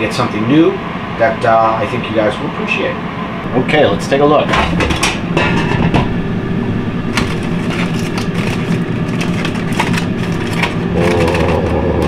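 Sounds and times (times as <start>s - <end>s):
steady low hum: 0.0s - 12.0s
aluminium foil crinkling: 7.1s - 12.0s.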